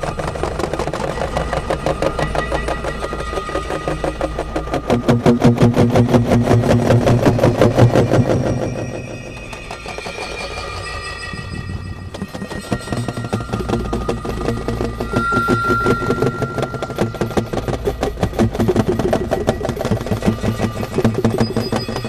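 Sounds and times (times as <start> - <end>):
rapid mechanical clatter: 0.0 - 15.6, 16.3 - 22.0
thin high steady tone: 8.4 - 19.4.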